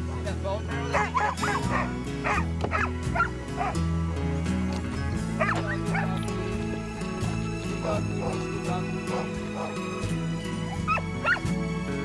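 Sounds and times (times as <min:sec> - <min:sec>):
background music with low notes: 0:00.0 - 0:12.0
dogs yipping and barking: 0:00.8 - 0:03.8, 0:05.3 - 0:06.2, 0:07.8 - 0:08.4, 0:09.0 - 0:10.0, 0:10.6 - 0:11.5.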